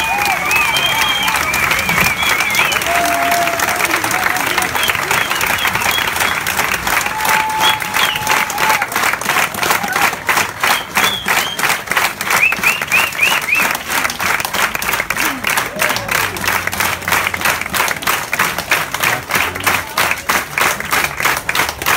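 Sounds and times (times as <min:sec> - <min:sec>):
short high cries from crowd: 0:00.0 - 0:06.3, 0:06.9 - 0:08.9
audience clapping in rhythm: 0:00.0 - 0:21.9.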